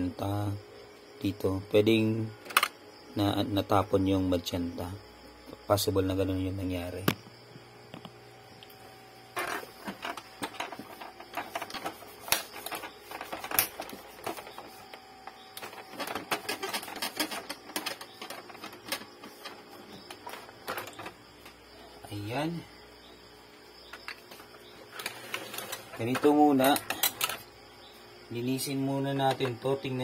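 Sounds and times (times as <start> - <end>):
hard plastic clicking and knocking: 15.2 - 21.6.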